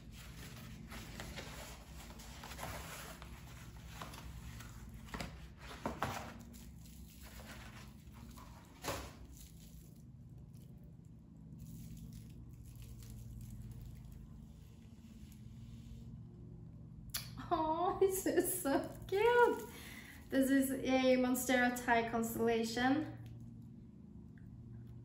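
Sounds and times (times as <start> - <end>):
packing paper rustling: 0.0 - 10.0.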